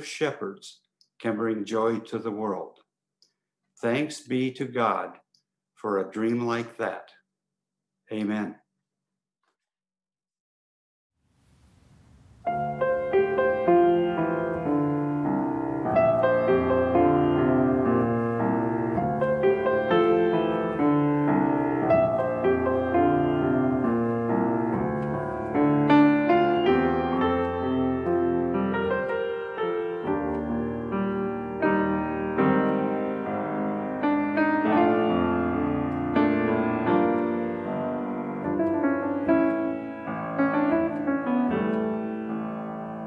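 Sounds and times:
grand piano playing: 0:12.4 - 0:43.0.

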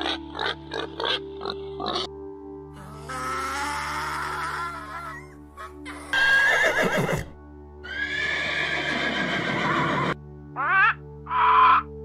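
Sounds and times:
background music held notes: 0:00.0 - 0:12.0
donkey braying: 0:02.8 - 0:12.0.

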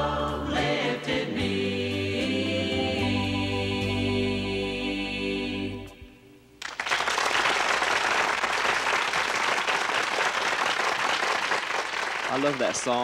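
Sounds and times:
choir singing final chord: 0:00.0 - 0:06.3
audience applause: 0:06.6 - 0:13.0.

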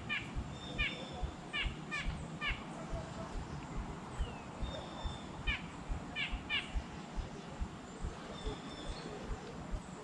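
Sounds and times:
bird chirping: 0:00.0 - 0:10.0
low soft thumping: 0:02.9 - 0:09.8.

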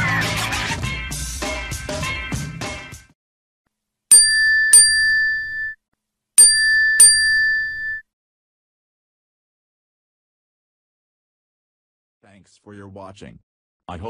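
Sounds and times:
high bell dings: 0:04.1 - 0:05.8, 0:06.4 - 0:08.0.

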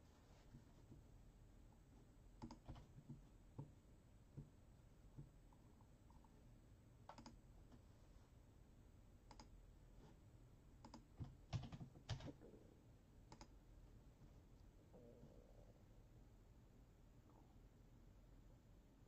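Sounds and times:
faint clicks and taps: 0:01.7 - 0:06.4.

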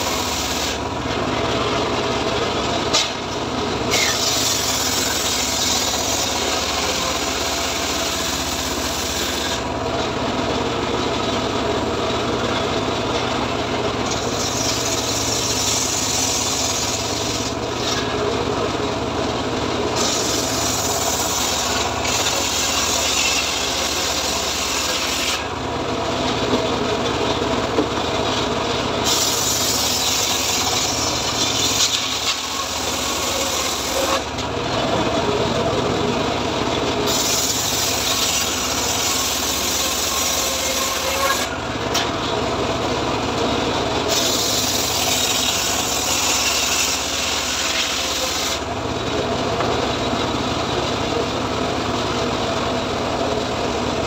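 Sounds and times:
saw blade ripping through log: 0:00.0 - 0:00.8, 0:03.9 - 0:09.7, 0:14.1 - 0:18.2, 0:20.0 - 0:25.5, 0:29.0 - 0:34.3, 0:37.0 - 0:42.1, 0:44.1 - 0:48.6.

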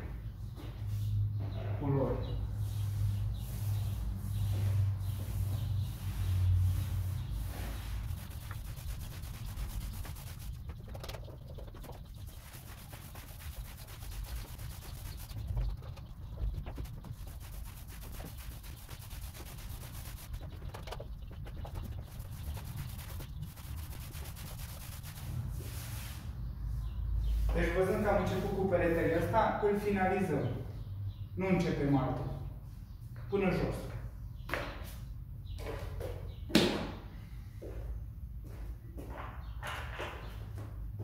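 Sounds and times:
paint roller rubbing on wall: 0:02.5 - 0:26.4.

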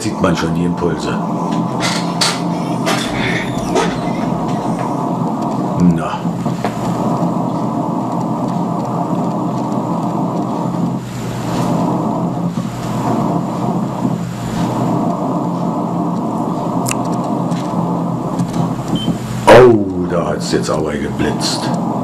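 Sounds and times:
crackles of atmospheric static: 0:00.0 - 0:22.0
radio hiss: 0:00.0 - 0:22.0
sharp click: 0:16.8 - 0:17.7.

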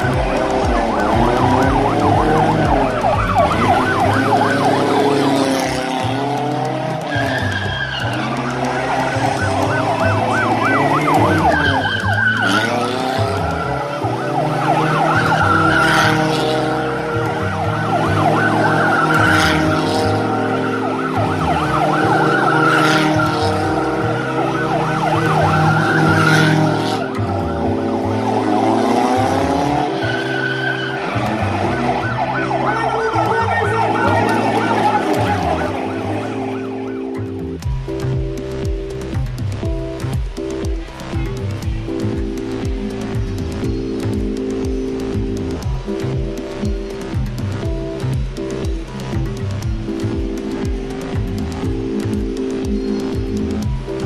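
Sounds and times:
tyres squealing: 0:00.0 - 0:36.6
car engine revving: 0:00.0 - 0:54.0
siren wailing: 0:00.0 - 0:54.0.

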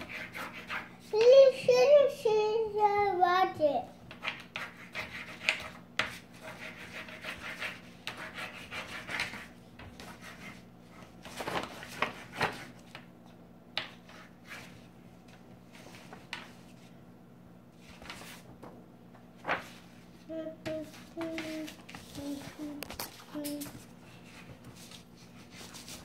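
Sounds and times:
crayon scribbling on paper: 0:00.0 - 0:01.2, 0:04.1 - 0:10.6
paper sliding and handling: 0:19.4 - 0:20.1.

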